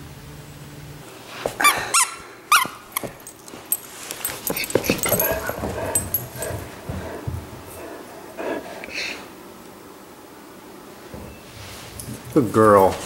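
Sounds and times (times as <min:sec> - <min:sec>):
dog yipping: 0:01.6 - 0:03.1
claws clicking on hardwood floor: 0:02.5 - 0:07.8.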